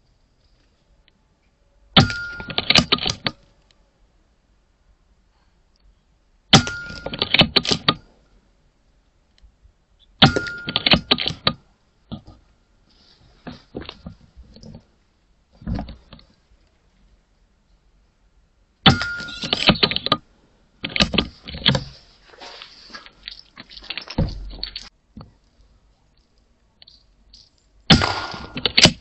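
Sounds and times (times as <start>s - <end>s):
rapid clicks and knocks: 10.2s - 12.4s, 20.8s - 22.0s, 27.4s - 29.0s
air rifle shots: 27.9s - 29.0s.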